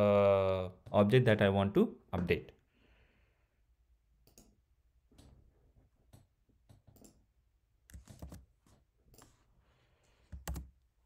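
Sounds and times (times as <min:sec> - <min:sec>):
computer keyboard keystrokes: 0:10.3 - 0:10.7.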